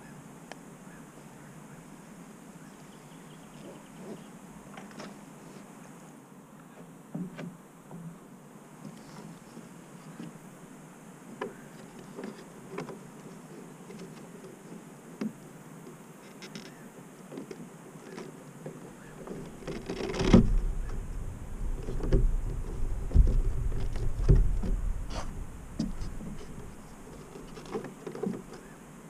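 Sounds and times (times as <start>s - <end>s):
low rumble: 20.3s - 27.1s.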